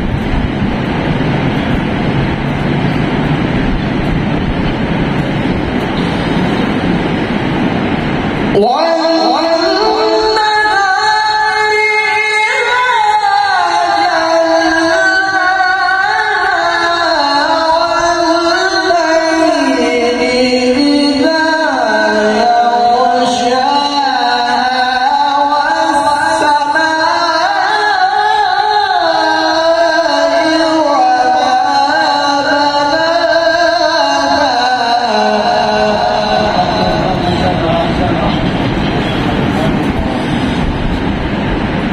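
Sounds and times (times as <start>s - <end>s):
man reciting melodically through pa: 8.0s - 40.3s.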